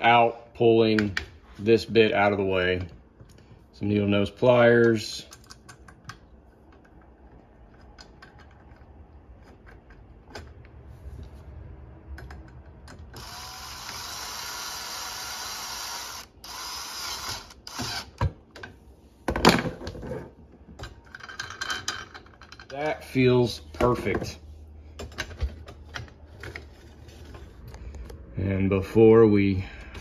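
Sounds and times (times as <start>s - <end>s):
cordless drill driving screw: 13.2s - 18.2s.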